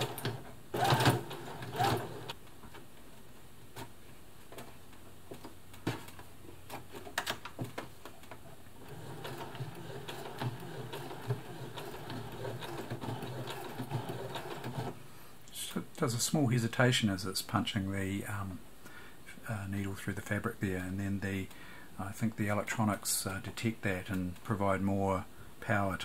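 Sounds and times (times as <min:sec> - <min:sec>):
sewing machine sewing: 0:00.0 - 0:02.4, 0:08.8 - 0:15.0.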